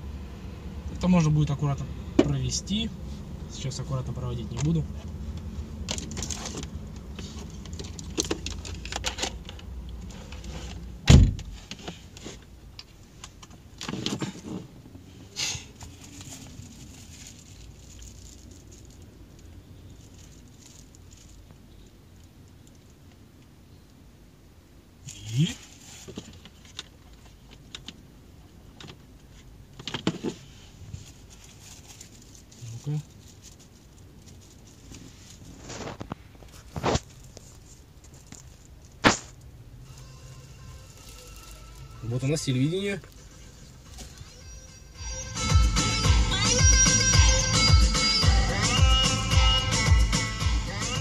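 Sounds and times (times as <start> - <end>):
clicks and rustles of cables: 4.5 - 10.8, 31.0 - 39.4
heavy thump: 11.0 - 11.6.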